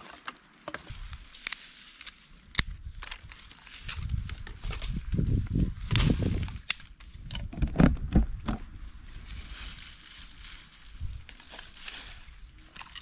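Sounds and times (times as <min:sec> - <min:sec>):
sticks cracking: 0:00.0 - 0:04.5, 0:05.9 - 0:07.1
rustle of dry tinder: 0:08.9 - 0:13.0
dry sticks knocking and clattering: 0:12.6 - 0:13.0.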